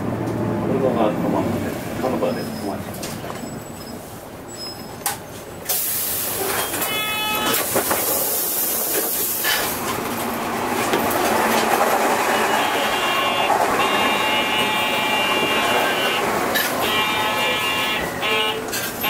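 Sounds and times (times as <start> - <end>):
bus engine and road noise: 0.0 - 19.0
loud air hiss: 5.7 - 6.5.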